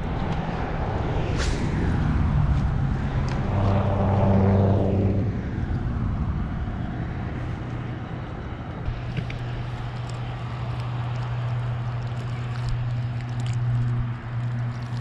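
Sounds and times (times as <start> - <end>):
passing motor vehicle engine: 0.0 - 15.0.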